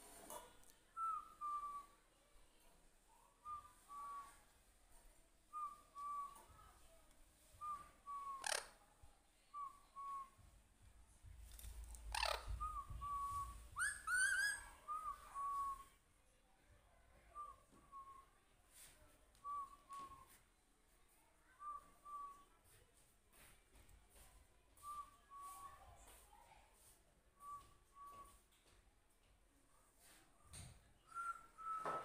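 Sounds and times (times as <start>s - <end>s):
parakeet shrieks: 8.4s - 8.7s.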